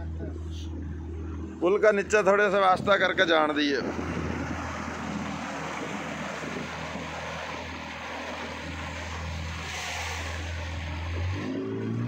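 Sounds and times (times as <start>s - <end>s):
boat motor humming: 0.0s - 12.0s
water rushing: 0.0s - 12.0s
wind rushing: 2.5s - 10.5s.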